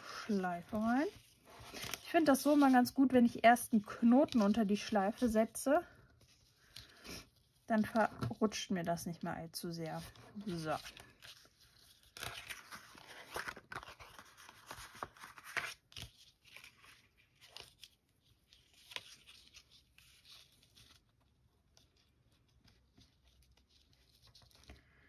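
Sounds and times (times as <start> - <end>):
paper card rustling: 0.0 - 9.2, 9.8 - 24.8.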